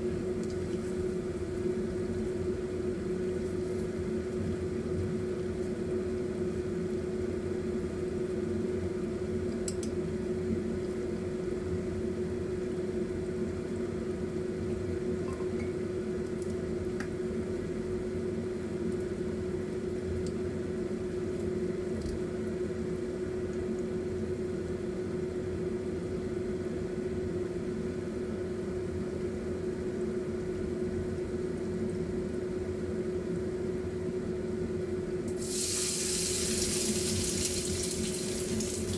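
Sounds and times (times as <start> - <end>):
mechanical hum: 0.0 - 38.9
oil bubbling and sizzling: 35.3 - 38.9.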